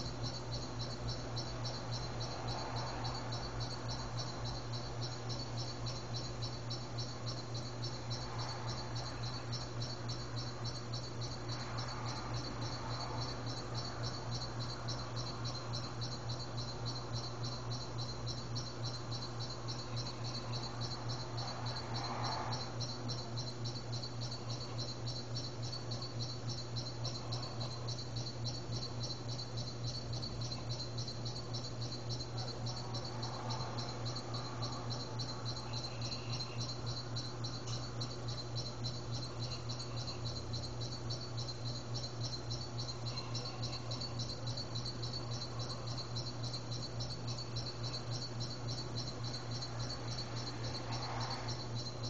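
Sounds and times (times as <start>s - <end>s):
insects chirping: 0.0s - 52.0s.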